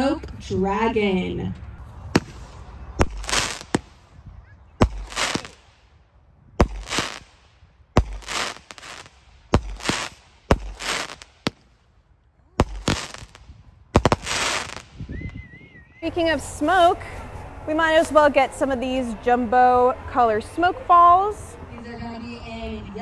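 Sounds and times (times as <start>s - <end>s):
smoke cake shots thumping and hissing: 2.1s - 3.9s, 4.8s - 5.6s, 6.6s - 7.4s, 8.0s - 11.6s, 12.6s - 13.4s, 14.0s - 14.9s.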